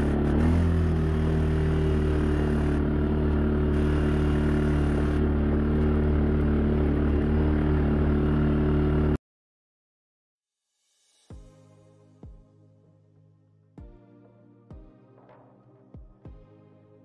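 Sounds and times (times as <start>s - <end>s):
atv engine droning: 0.0s - 9.2s.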